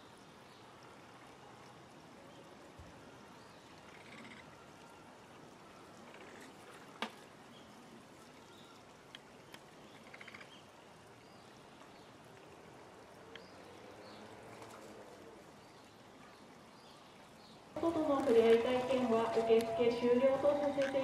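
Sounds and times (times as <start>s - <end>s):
faint ticks: 3.7s - 4.9s, 9.0s - 10.6s, 13.2s - 13.6s.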